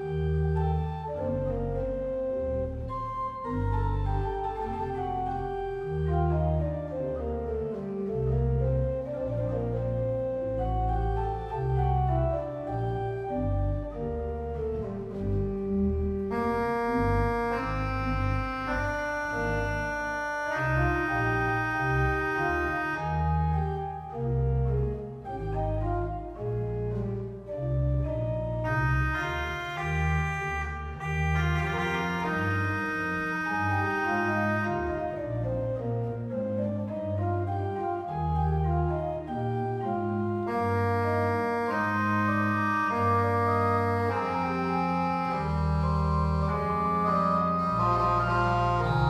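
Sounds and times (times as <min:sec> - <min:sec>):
pipe organ playing chords: 0:00.0 - 0:49.0.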